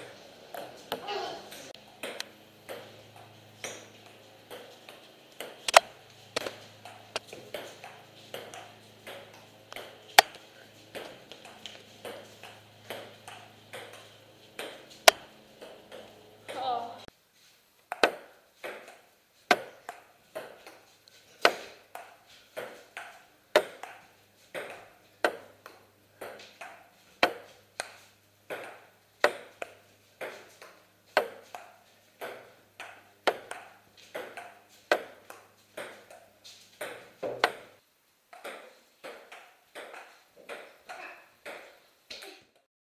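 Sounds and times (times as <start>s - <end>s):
table tennis ball clicks: 17.9s - 20.6s, 31.2s - 36.2s, 36.8s - 37.7s.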